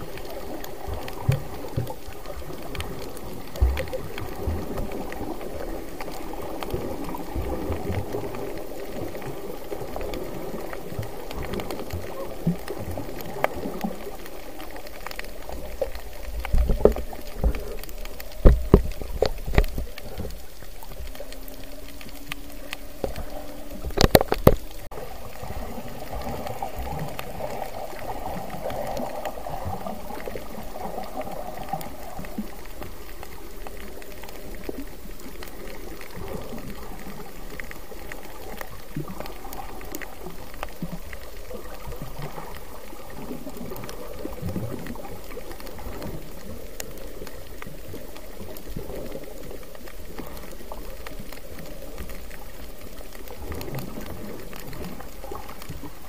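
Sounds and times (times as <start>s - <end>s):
underwater bubbling: 0.0s - 56.0s.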